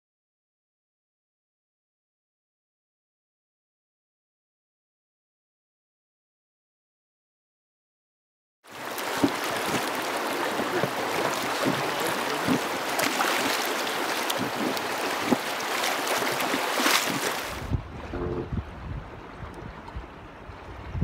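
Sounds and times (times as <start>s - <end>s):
small water splashes: 8.7s - 17.7s
river water rushing: 8.7s - 18.5s
low rumble: 17.5s - 21.0s.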